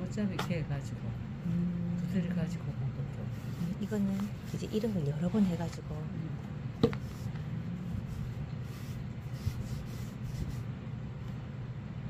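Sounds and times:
steady low hum: 0.0s - 12.0s
fabric rubbing and rustling: 3.3s - 6.0s, 7.0s - 10.7s.

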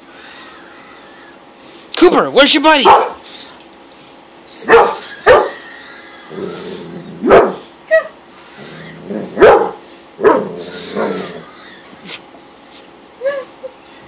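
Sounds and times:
dog barking: 2.8s - 3.2s, 4.6s - 5.6s, 7.2s - 7.6s, 9.4s - 10.5s.

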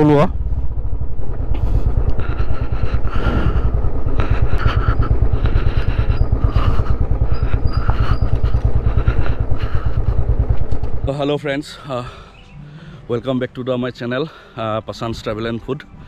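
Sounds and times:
motorcycle engine running: 0.0s - 14.5s.

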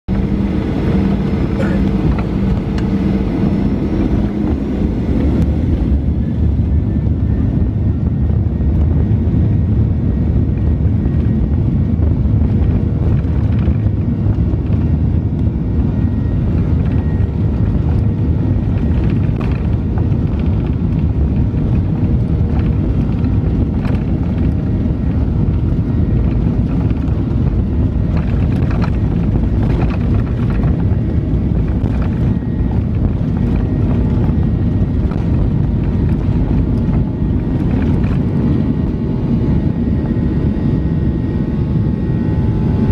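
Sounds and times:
jet engines roaring: 0.1s - 42.9s
wheels rumbling on runway: 0.1s - 42.9s.

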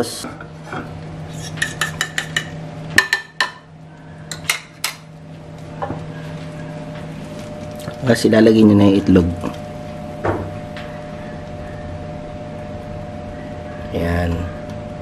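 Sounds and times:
low steady hum: 0.0s - 15.0s
spoon clinking against ceramic bowl: 1.6s - 3.6s.

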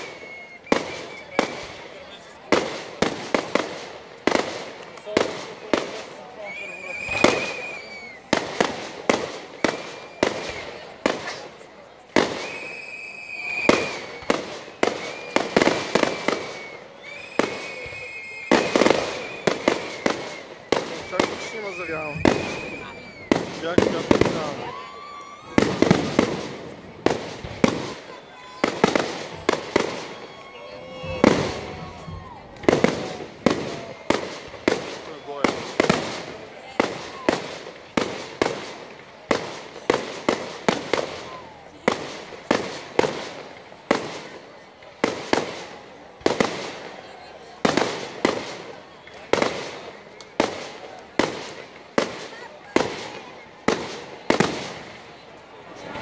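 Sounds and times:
high whistle: 0.0s - 1.7s, 6.4s - 8.3s, 12.3s - 23.3s
fireworks bursting with bangs: 0.0s - 56.0s.

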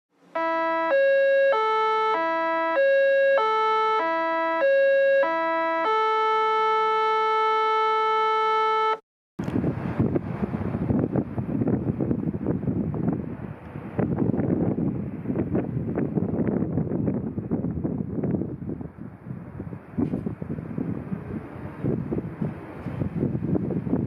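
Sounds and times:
synthesized electronic tune: 0.4s - 9.0s
wind noise on microphone: 9.4s - 24.0s.

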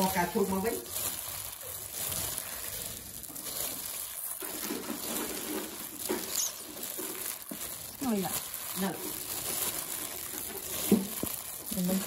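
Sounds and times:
gloved hand tossing chives in bowl: 0.0s - 12.0s.

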